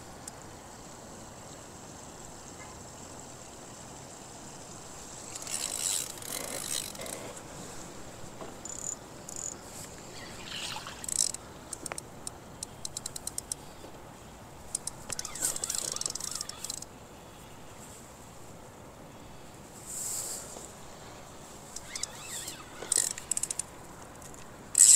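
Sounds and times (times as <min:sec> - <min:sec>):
fishing reel clicking: 0:05.3 - 0:07.3, 0:08.6 - 0:13.6, 0:14.7 - 0:16.9, 0:21.8 - 0:24.9.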